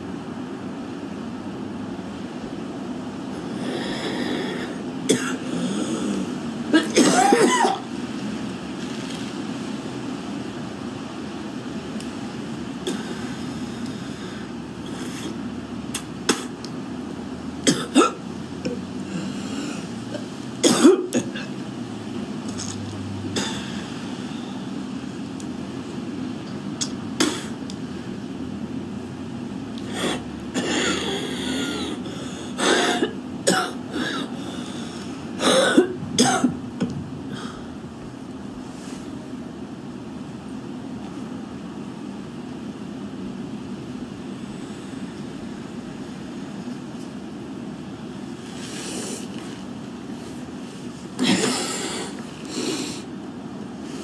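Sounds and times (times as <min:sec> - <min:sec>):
woman coughing: 0:05.1 - 0:05.4, 0:06.7 - 0:07.9, 0:17.7 - 0:18.8, 0:20.6 - 0:21.5, 0:32.6 - 0:34.3, 0:35.4 - 0:36.6, 0:51.2 - 0:52.1
woman clearing throat: 0:06.7 - 0:07.8, 0:20.6 - 0:21.5, 0:35.4 - 0:36.6, 0:51.2 - 0:52.1.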